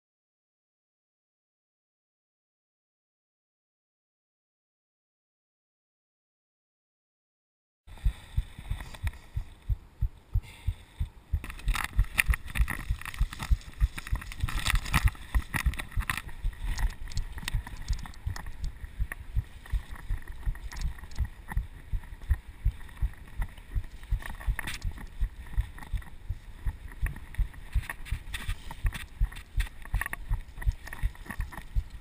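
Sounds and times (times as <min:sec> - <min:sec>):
bike tyres thumping on dirt trail: 0:11.3 - 0:32.0
bike rattling: 0:11.4 - 0:32.0.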